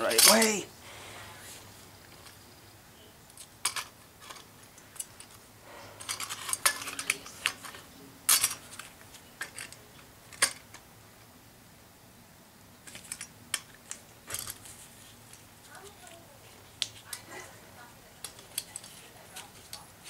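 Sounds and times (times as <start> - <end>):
metal bracket clinking: 0.0 - 0.6, 6.0 - 10.8.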